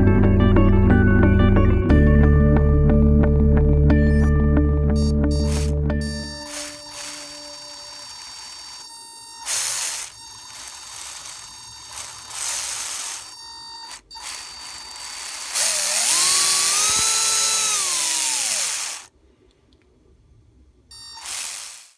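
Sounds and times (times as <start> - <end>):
small electric motor whirring: 5.3 - 19.1, 20.9 - 21.9
plastic gear rattle: 5.4 - 19.1.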